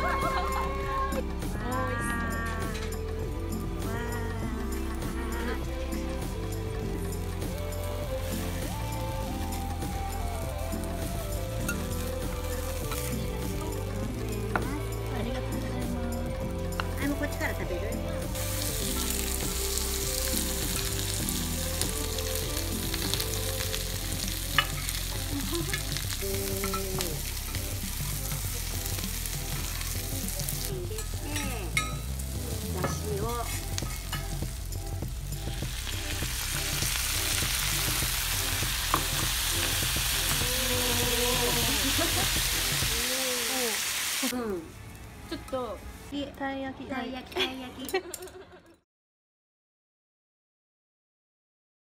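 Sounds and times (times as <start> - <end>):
food sizzling on a griddle: 0.0 - 45.0
spatulas clinking on steel: 30.9 - 32.2, 33.4 - 34.4.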